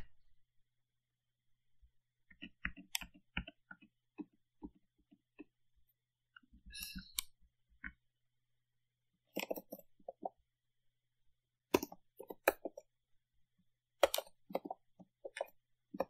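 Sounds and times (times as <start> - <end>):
mouse clicks: 2.3 - 3.9, 6.7 - 8.0, 9.3 - 10.2, 14.0 - 16.0
computer keyboard keystrokes: 14.0 - 16.0.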